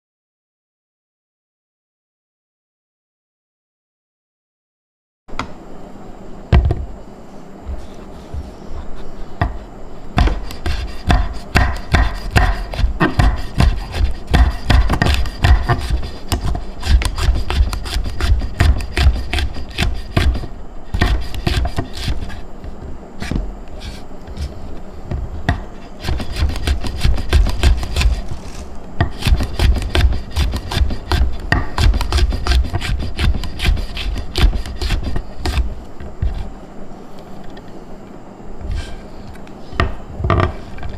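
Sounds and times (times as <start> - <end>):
knife chopping on wooden board: 10.2 - 24.5, 25.1 - 36.5.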